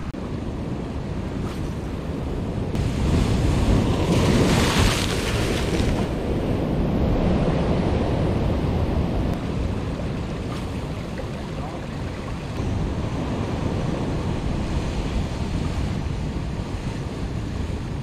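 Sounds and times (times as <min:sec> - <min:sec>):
wind buffeting microphone: 0:00.0 - 0:18.0
waves crashing on rocks: 0:02.7 - 0:06.4.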